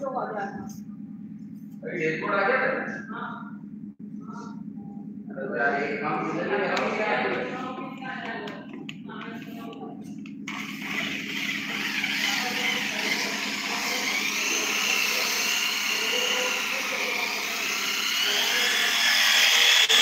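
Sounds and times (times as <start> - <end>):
electric polisher whining: 10.5 - 20.0.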